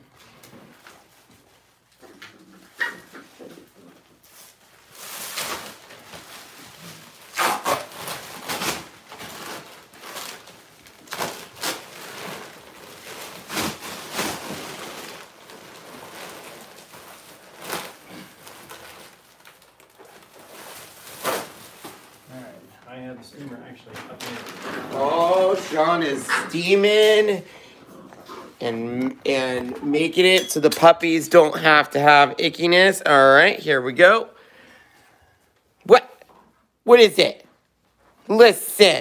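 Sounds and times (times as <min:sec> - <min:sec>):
plastic sheeting rustling: 0:02.9 - 0:27.5.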